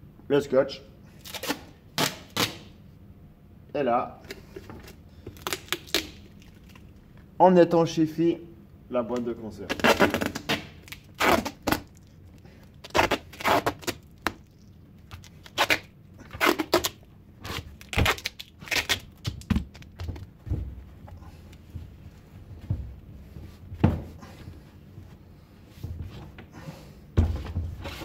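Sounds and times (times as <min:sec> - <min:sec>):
duct tape ripping: 0:01.2 - 0:02.7, 0:05.3 - 0:06.8, 0:09.6 - 0:12.2, 0:12.8 - 0:20.0.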